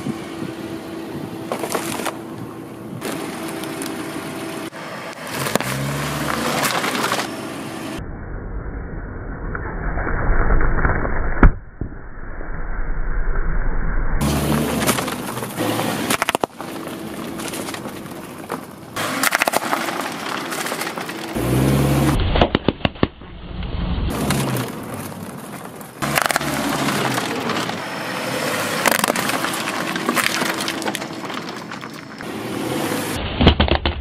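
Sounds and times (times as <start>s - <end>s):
snacks and plastic crunching: 28.8s - 32.3s.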